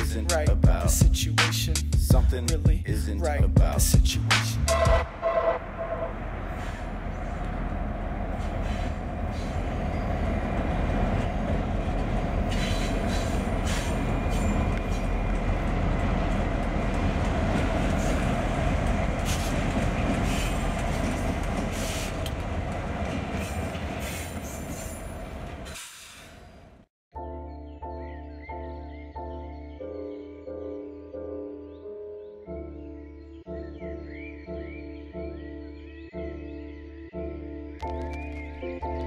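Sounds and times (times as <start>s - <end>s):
diesel locomotive engine drone: 1.6s - 26.9s
train wheels rumbling on rails: 4.7s - 26.8s.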